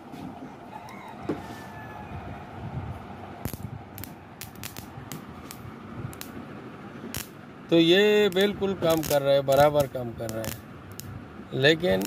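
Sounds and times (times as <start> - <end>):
faint steady hum: 0.0 - 12.0
spark plug snapping: 3.4 - 6.4, 7.1 - 7.4, 8.3 - 11.1.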